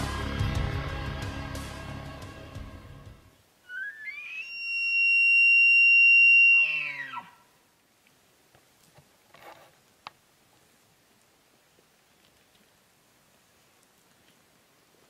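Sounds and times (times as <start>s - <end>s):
elk bugling whistle and grunts: 3.6s - 7.4s.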